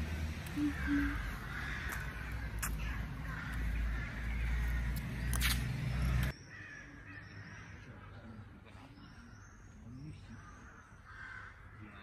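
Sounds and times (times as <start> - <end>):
crows cawing: 0.5 - 5.5, 6.4 - 7.9, 10.3 - 12.0.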